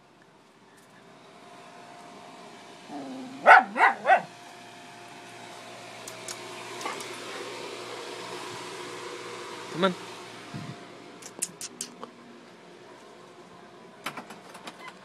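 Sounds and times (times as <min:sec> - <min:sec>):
dog barking: 0:03.4 - 0:04.3.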